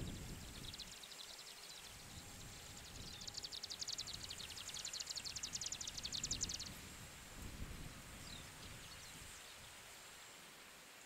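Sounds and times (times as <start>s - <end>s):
bird singing dry ticking run: 0.0s - 6.8s.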